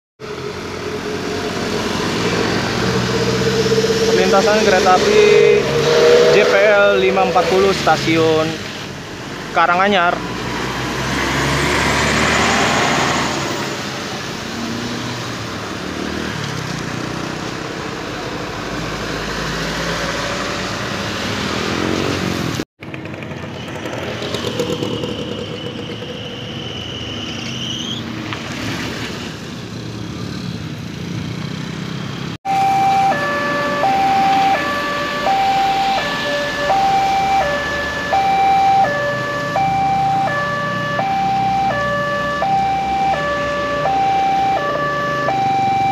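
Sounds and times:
traffic on wet road: 0.2s - 45.9s
two-note electronic crossing alarm: 32.5s - 45.9s.

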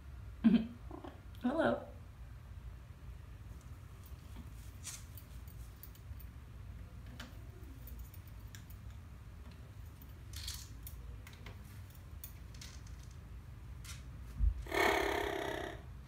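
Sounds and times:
parrot crying call: 14.6s - 15.9s.

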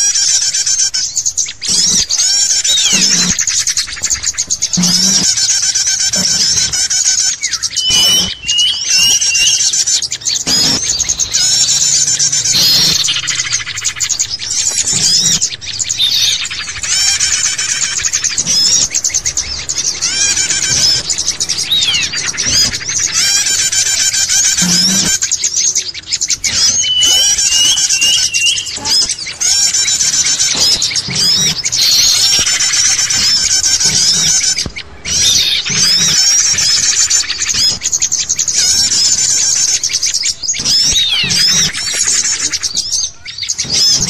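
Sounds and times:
songbirds chirping chorus: 0.0s - 44.0s
whistled notes: 6.2s - 37.9s.

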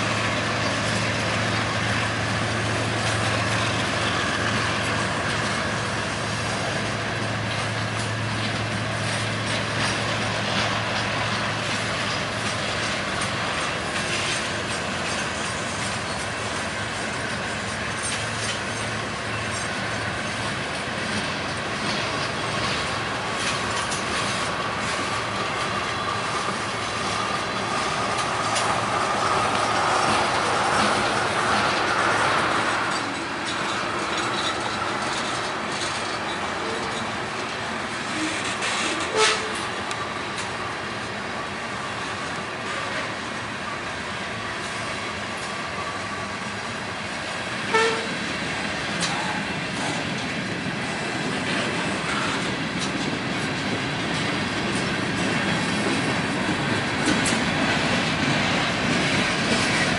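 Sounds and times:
diesel locomotive engine hum: 0.0s - 59.9s
train wheels clicking over rail joints: 0.0s - 59.9s.

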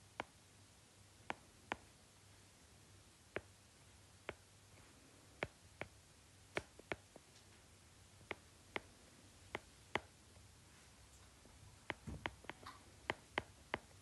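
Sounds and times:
low steady hum: 0.0s - 14.0s
stylus tapping on glass screen: 11.9s - 13.9s.

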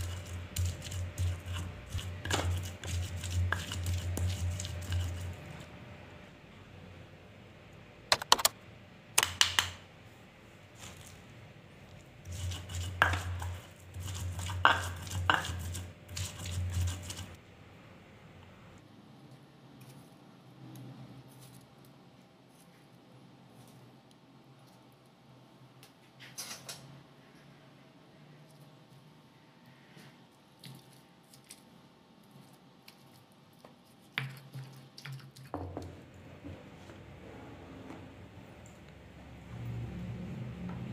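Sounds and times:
stone pestle grinding in mortar: 0.0s - 5.6s, 12.2s - 17.4s
wet squishing of tomatoes: 10.7s - 17.2s, 30.6s - 31.7s.

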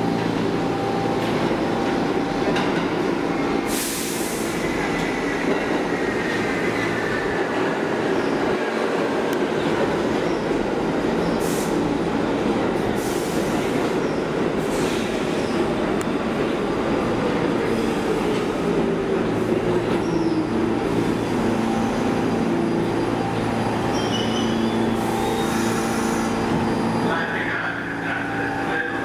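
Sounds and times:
subway train wheels rumbling: 0.0s - 29.0s
brake squeals: 23.9s - 27.3s.

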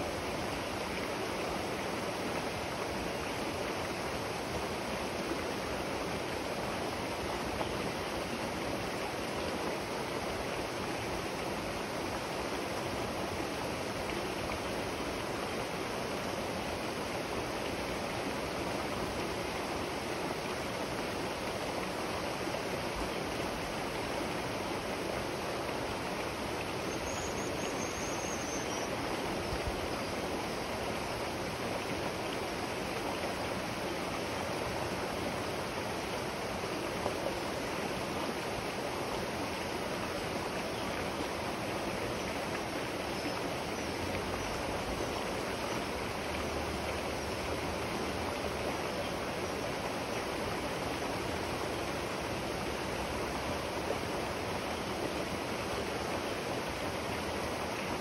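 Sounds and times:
river water rushing: 0.0s - 58.0s.

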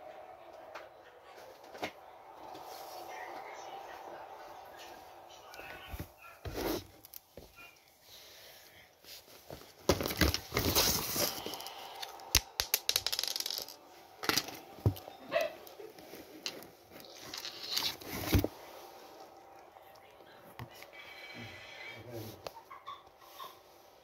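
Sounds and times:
cardboard box rustling and scraping: 9.5s - 11.5s, 17.0s - 18.5s.

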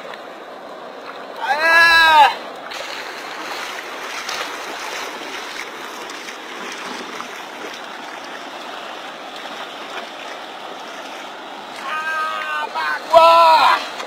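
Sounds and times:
river water rushing: 0.0s - 14.0s.

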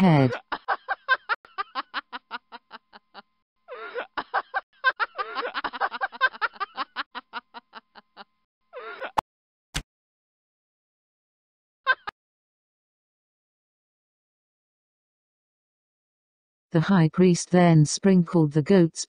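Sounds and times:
woman laughing: 0.0s - 9.2s, 11.9s - 12.1s.

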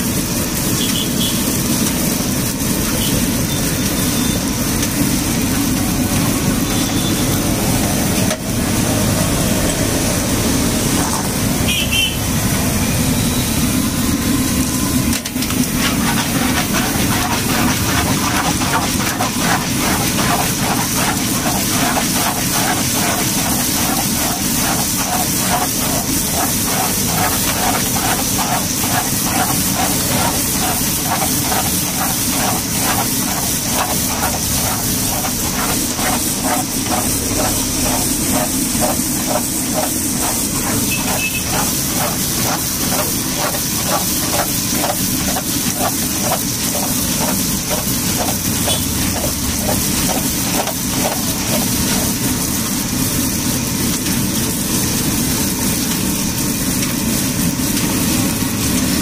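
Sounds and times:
oil sizzling in a wok: 0.0s - 59.0s
rhythmic mechanical clatter: 15.2s - 52.9s.

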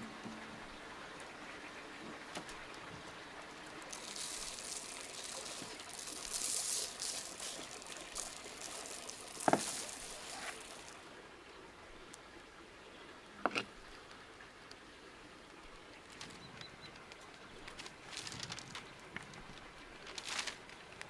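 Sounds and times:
liquid pouring: 2.8s - 11.2s.

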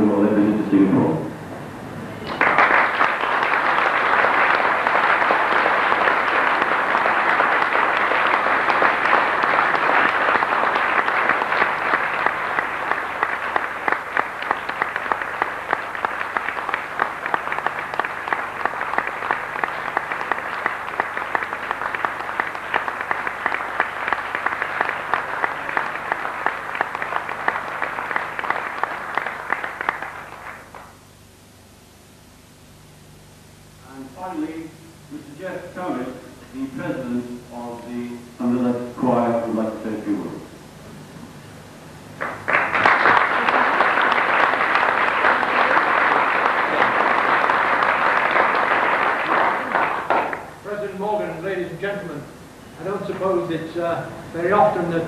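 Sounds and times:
audience applauding: 2.2s - 31.0s, 42.1s - 51.1s.

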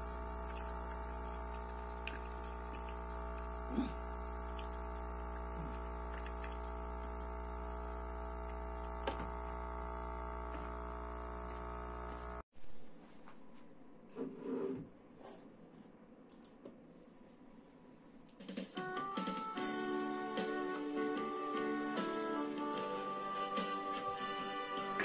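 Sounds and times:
coffee machine pump humming: 0.0s - 12.4s.

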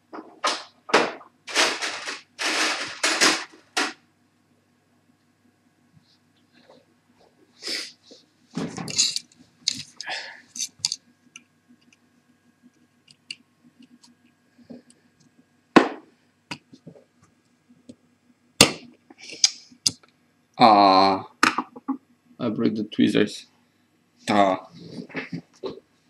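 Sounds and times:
metal tools scraping and clicking: 8.9s - 11.0s.

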